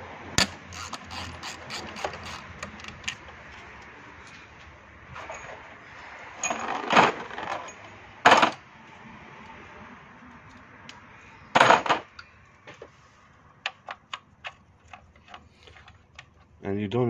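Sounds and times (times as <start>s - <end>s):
sharp clicks of ratcheting tool: 0.4s - 3.2s.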